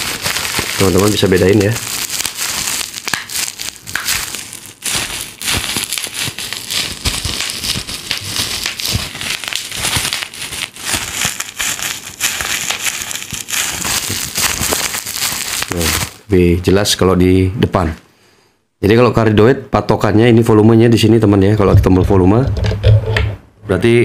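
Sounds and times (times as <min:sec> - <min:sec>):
plastic crinkling and crackling: 0:00.0 - 0:16.3.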